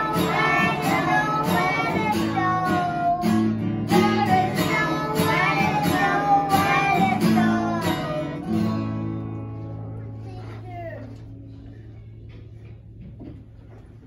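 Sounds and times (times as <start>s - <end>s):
children singing: 0.0s - 9.1s
acoustic guitar strumming: 0.0s - 10.4s.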